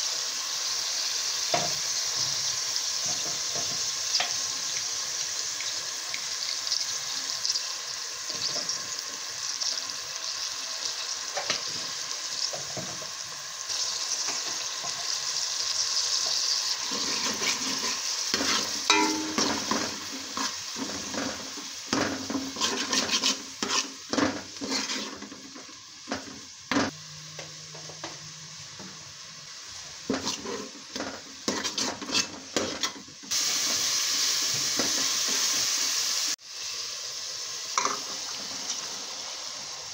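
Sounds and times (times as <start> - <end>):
food sizzling in oil: 0.0 - 39.9
metal spoon scraping pot: 22.2 - 25.4, 30.1 - 33.0.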